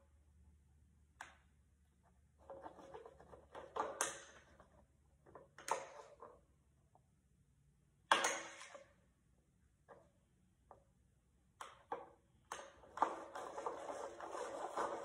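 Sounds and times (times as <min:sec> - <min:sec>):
scraping and stirring in a bowl: 0:02.4 - 0:03.8, 0:12.8 - 0:15.0.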